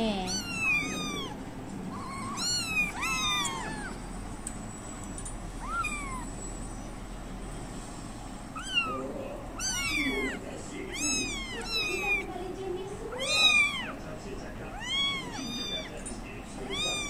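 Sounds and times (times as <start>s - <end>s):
kittens mewing: 0.0s - 4.2s, 5.5s - 6.4s, 8.5s - 14.0s, 14.6s - 16.0s, 16.6s - 17.0s.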